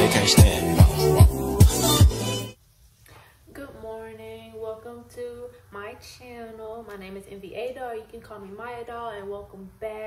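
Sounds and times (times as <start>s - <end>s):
woman speaking in sing-song tones: 3.5s - 10.0s.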